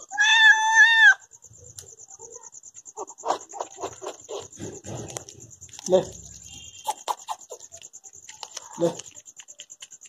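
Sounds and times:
cat meowing: 0:00.0 - 0:01.2
crickets chirping: 0:00.0 - 0:10.0.

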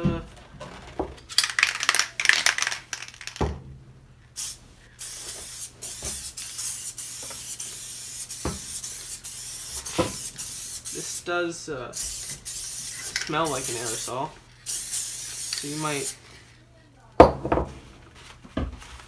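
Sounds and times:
aerosol spray hissing: 0:04.4 - 0:11.3, 0:11.9 - 0:16.3
vinyl covering rustling and crackling: 0:18.0 - 0:19.0.

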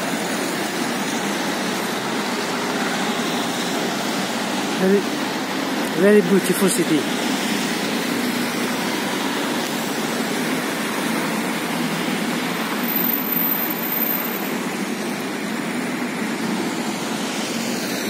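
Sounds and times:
road traffic passing: 0:00.0 - 0:18.0
motor scooter: 0:07.0 - 0:18.0.

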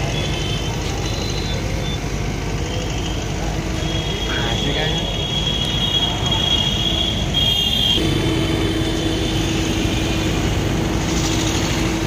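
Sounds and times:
engine low rumble: 0:00.0 - 0:05.8, 0:08.0 - 0:12.0
steady lower hum: 0:08.0 - 0:12.0.

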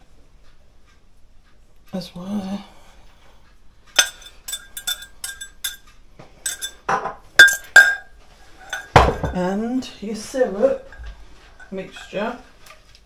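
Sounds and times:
whisk clinking against glass jug: 0:04.0 - 0:05.8, 0:06.4 - 0:09.2, 0:11.6 - 0:12.4.

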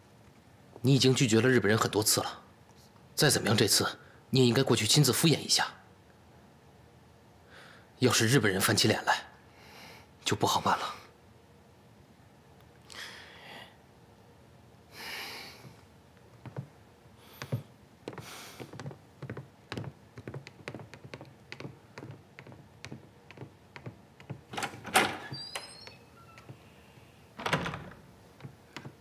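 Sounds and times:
boot footsteps on wooden floor: 0:16.4 - 0:24.5
door thunk with squeak: 0:24.5 - 0:26.6.

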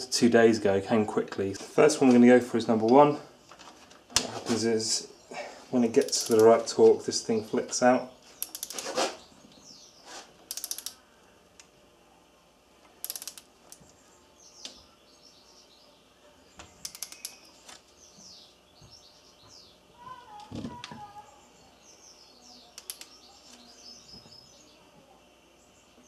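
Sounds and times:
birds chirping faintly: 0:04.6 - 0:26.0
torque wrench ratcheting: 0:06.0 - 0:06.6, 0:08.4 - 0:08.8, 0:10.5 - 0:11.0, 0:13.0 - 0:13.5, 0:16.8 - 0:17.5, 0:22.8 - 0:23.1.

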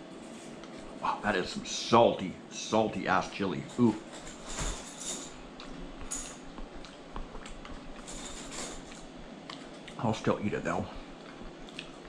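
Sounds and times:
person chewing: 0:05.5 - 0:08.1, 0:09.3 - 0:10.0, 0:11.1 - 0:12.0.

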